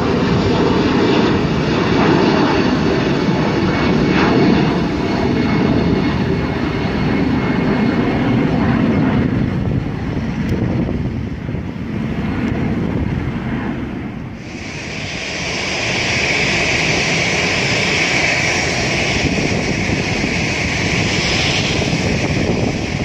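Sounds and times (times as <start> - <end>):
distant jet rumble: 0.0 - 23.0
hissing jet roar: 0.0 - 23.0.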